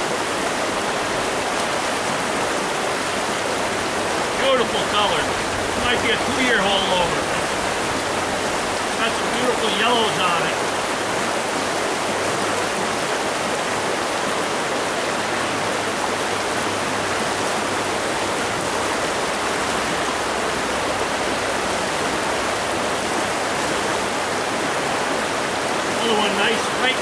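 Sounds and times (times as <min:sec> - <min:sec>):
stream water rushing over stones: 0:00.0 - 0:27.0.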